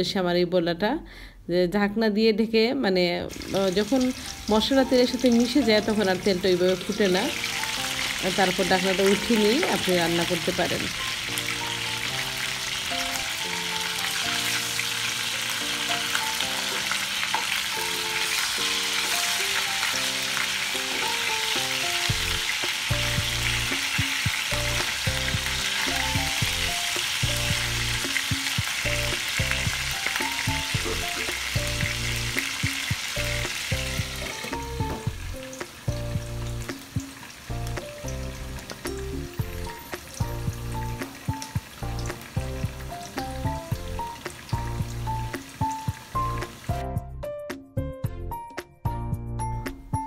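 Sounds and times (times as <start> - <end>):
background music melody: 2.0 - 50.0
chicken sizzling in oil: 3.3 - 46.9
bass beat: 22.1 - 37.0, 37.6 - 44.0, 46.7 - 49.7.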